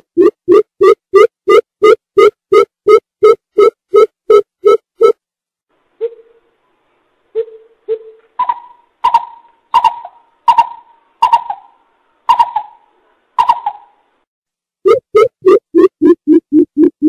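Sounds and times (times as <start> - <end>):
bird deep hooting call: 7.4 - 14.0.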